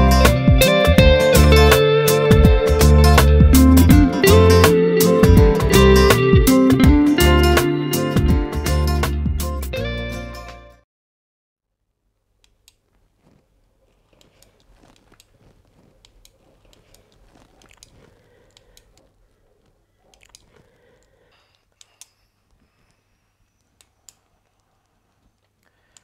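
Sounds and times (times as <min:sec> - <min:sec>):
crunchy rustles: 0:12.6 - 0:21.3
small clicks: 0:20.1 - 0:22.6.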